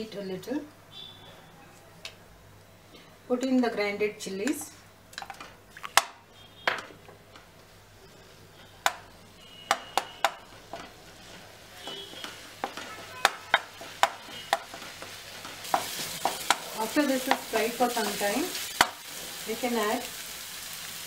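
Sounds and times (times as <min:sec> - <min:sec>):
faint sizzle of oil: 0:07.2 - 0:21.0
spatula tapping and scraping pan: 0:09.7 - 0:17.5, 0:18.8 - 0:19.0.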